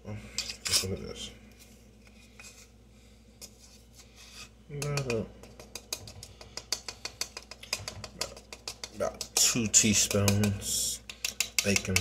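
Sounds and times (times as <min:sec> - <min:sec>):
spoon tapping a container: 0:04.8 - 0:12.0.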